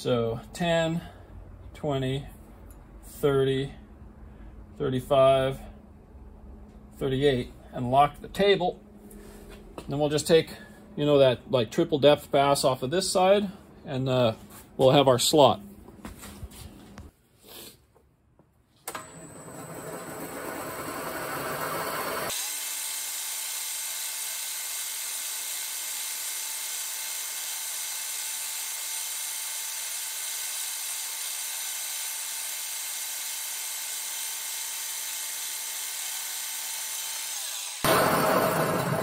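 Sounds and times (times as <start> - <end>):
milling machine cutting: 18.9 - 39.0.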